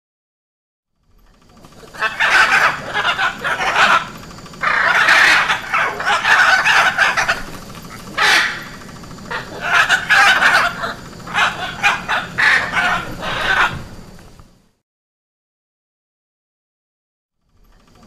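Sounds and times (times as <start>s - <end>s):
macaw squawking: 1.6s - 14.0s.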